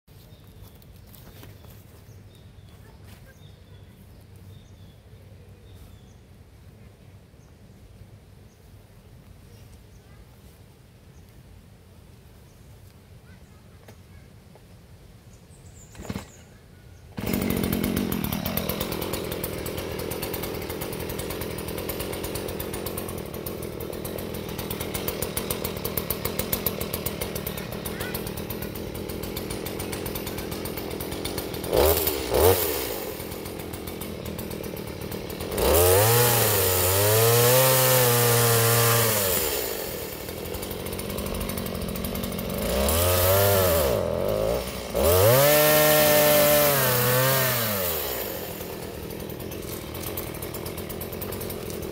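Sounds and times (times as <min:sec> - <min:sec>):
chainsaw cutting wood: 0:15.9 - 0:16.4, 0:17.2 - 0:51.9
chainsaw pull-starting: 0:15.9 - 0:16.4, 0:17.2 - 0:51.9
chainsaw idling: 0:17.2 - 0:51.9
chainsaw throttle blips: 0:17.2 - 0:51.9.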